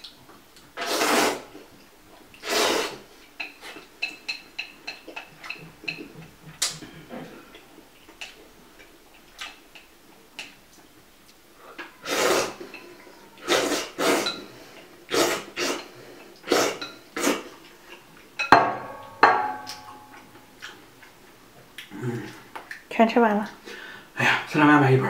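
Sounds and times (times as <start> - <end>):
noodles being slurped: 0.8 - 1.6, 2.4 - 3.9, 11.9 - 12.7, 13.4 - 14.4, 15.1 - 18.0
bowl clinking: 3.4 - 6.2, 18.4 - 20.6.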